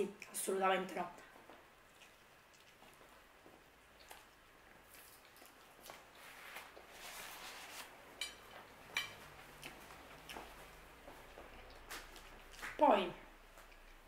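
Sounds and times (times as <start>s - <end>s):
person chewing pizza: 1.4s - 12.8s, 13.4s - 14.0s
paper napkin rustling: 6.2s - 8.0s.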